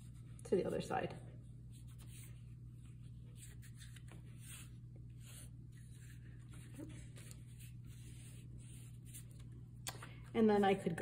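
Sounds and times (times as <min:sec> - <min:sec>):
steady low hum: 0:00.0 - 0:11.0
oil pastel scratching on paper: 0:01.7 - 0:09.4.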